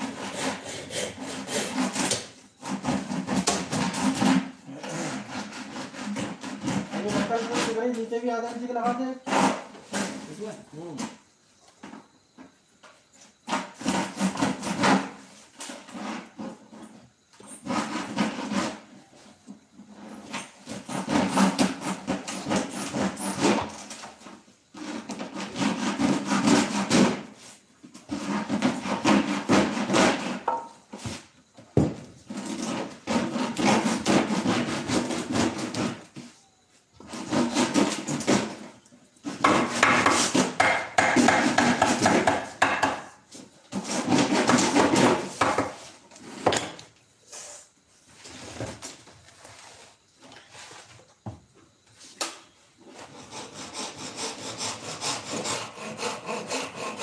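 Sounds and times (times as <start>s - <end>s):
wood scraping against wood: 0.0s - 31.4s, 32.2s - 36.4s, 37.0s - 51.3s
sharp wooden knock: 39.4s - 43.1s.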